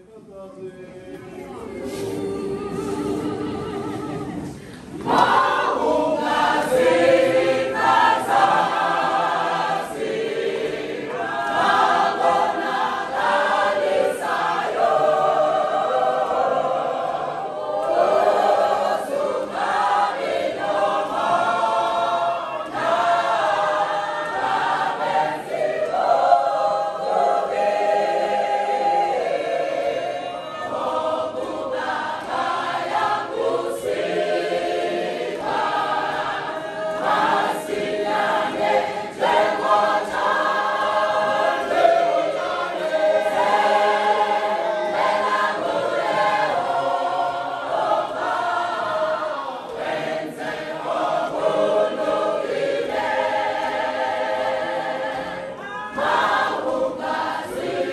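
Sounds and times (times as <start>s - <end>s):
choir singing a hymn: 0.0s - 57.9s.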